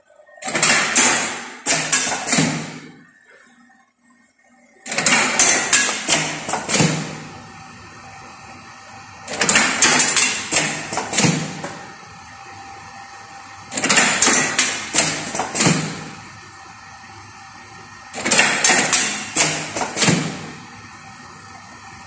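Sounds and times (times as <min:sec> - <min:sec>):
steady machine hum: 0:00.0 - 0:22.0
metallic clacking and knocking: 0:04.9 - 0:07.2, 0:09.3 - 0:11.8.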